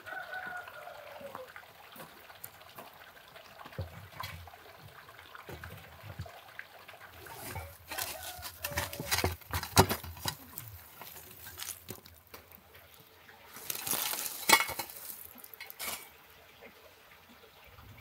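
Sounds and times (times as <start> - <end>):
coals pouring and rattling: 1.9 - 16.2
shovel scraping charcoal: 7.2 - 12.4, 13.5 - 16.1.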